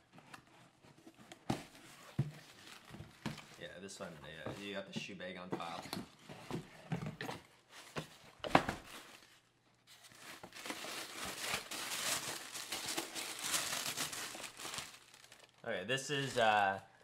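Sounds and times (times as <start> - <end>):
wrapping crinkling and rustling: 0.0 - 3.8, 7.6 - 16.7.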